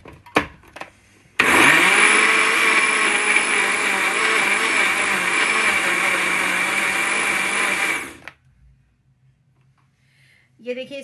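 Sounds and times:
blender running: 0:01.4 - 0:08.3.

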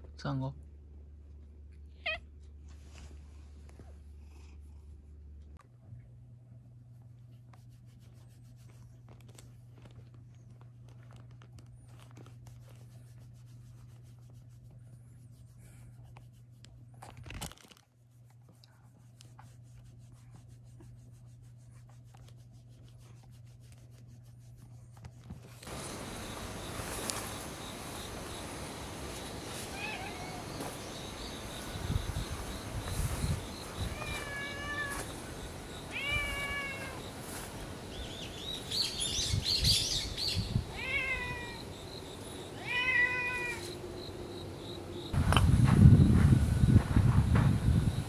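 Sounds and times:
low steady hum: 0:00.0 - 0:39.4
hand stroking cat fur: 0:07.0 - 0:16.9, 0:18.0 - 0:28.2.

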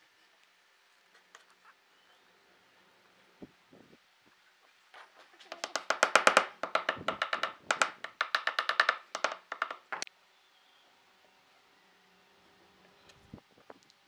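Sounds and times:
hammer tapping wood: 0:05.5 - 0:10.1.

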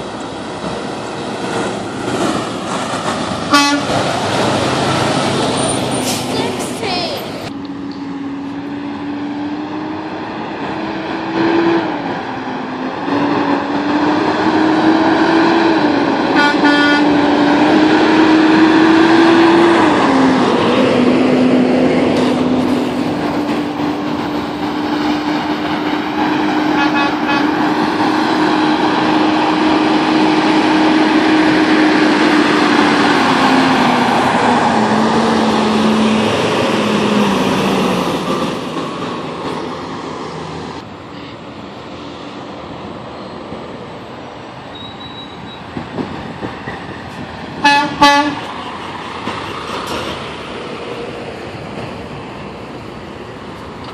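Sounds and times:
truck approaching: 0:00.0 - 0:53.9
truck air horn blasts: 0:03.5 - 0:03.9, 0:16.3 - 0:17.3, 0:26.2 - 0:27.8, 0:47.6 - 0:48.5.

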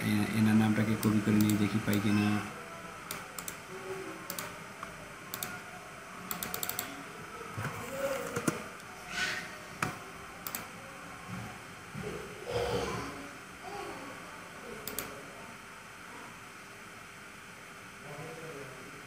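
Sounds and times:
keyboard and mouse clicks: 0:03.1 - 0:03.6, 0:04.3 - 0:04.6, 0:05.3 - 0:05.6, 0:06.3 - 0:06.9, 0:09.8 - 0:10.7, 0:14.8 - 0:15.1.

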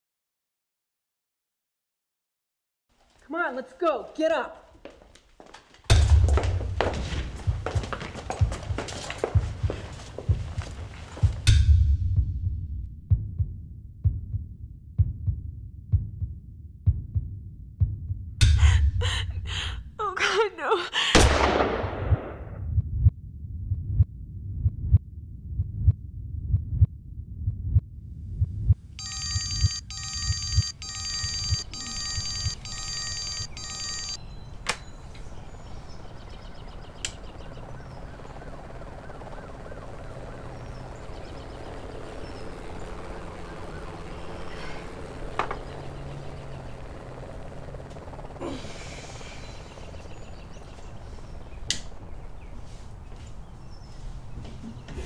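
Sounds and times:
low heartbeat-like thumps: 0:05.9 - 0:20.0, 0:21.6 - 0:28.9
steady low hum: 0:05.9 - 0:55.0
pulsing high electronic ringing: 0:29.0 - 0:34.5, 0:37.8 - 0:48.4.

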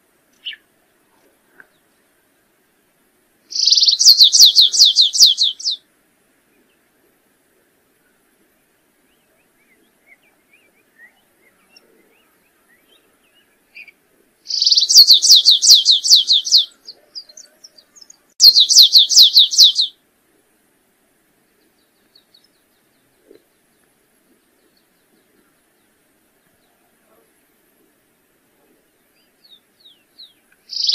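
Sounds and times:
finch trilling song: 0:00.4 - 0:00.7, 0:03.5 - 0:05.8, 0:09.1 - 0:20.0, 0:29.0 - 0:30.9.

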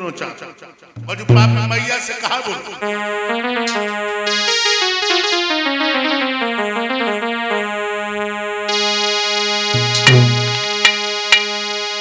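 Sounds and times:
held low synth note: 0:01.0 - 0:02.2, 0:09.8 - 0:11.0
synthesizer melody: 0:01.0 - 0:02.2, 0:02.8 - 0:07.9, 0:08.7 - 0:12.0.

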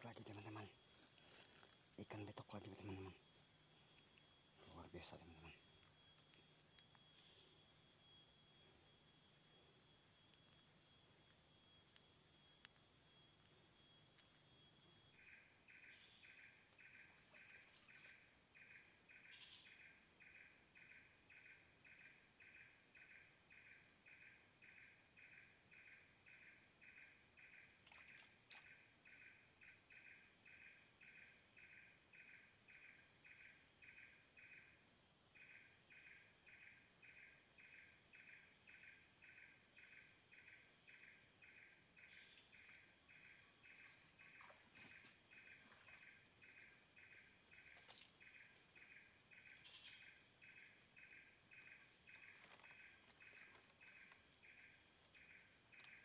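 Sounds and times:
insects droning: 0:00.0 - 0:56.0
rhythmic insect chirping: 0:00.0 - 0:56.0
faint ticks: 0:05.6 - 0:07.4, 0:10.0 - 0:15.2, 0:47.5 - 0:56.0.

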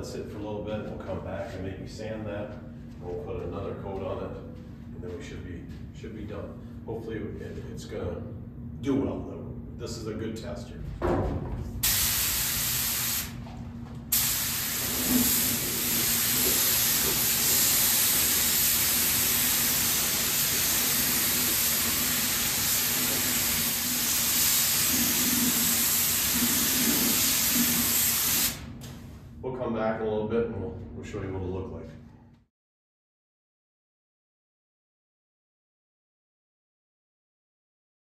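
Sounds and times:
paint spray gun hissing: 0:11.8 - 0:13.4, 0:14.1 - 0:28.7.

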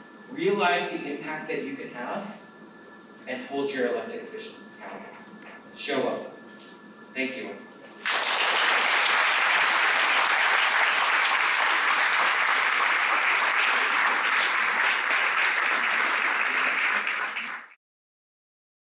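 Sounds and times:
audience applauding: 0:08.0 - 0:17.8.

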